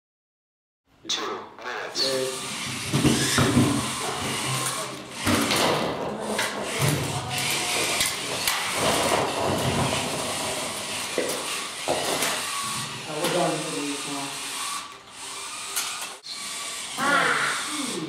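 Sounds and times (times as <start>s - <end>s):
robot motors whirring: 2.0s - 18.0s
balls rolling on floor: 2.6s - 13.5s
plastic crates clattering: 5.3s - 10.6s.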